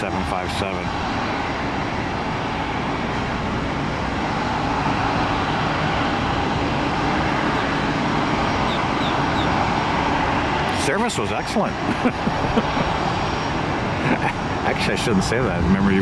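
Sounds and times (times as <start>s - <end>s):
jet engines roaring while taxiing: 0.0s - 16.0s.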